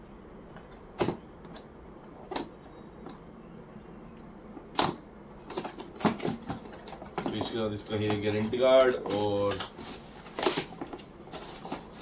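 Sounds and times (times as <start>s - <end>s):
cardboard and plastic rustling: 4.8s - 12.0s.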